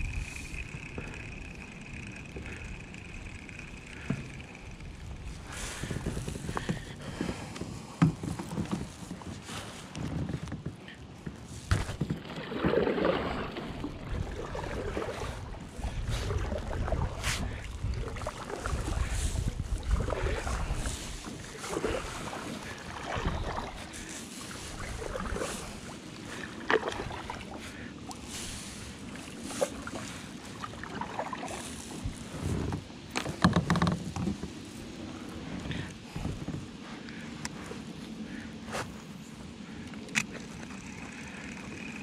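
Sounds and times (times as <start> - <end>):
kayak paddle splashing in water: 11.6 - 34.4.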